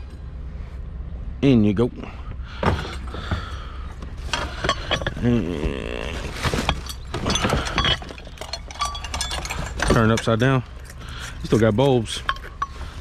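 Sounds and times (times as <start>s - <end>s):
glass globes clinking: 4.4s - 5.5s, 6.6s - 13.0s.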